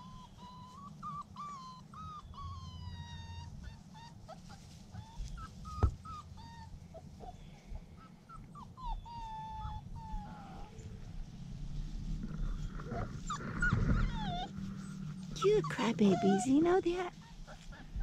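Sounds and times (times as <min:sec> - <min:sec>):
dog whimpering: 0:00.0 - 0:07.4, 0:08.0 - 0:10.7, 0:12.5 - 0:18.0.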